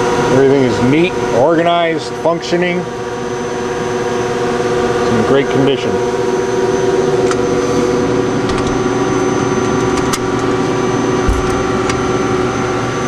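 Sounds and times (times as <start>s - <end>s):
lathe humming: 0.0s - 13.0s
door latch clicks: 8.5s - 8.8s, 11.3s - 12.0s
low bump on cabinet door: 11.3s - 11.8s.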